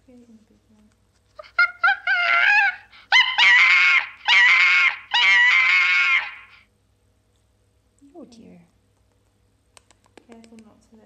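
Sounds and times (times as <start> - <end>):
baby baboon crying: 1.4 - 6.6.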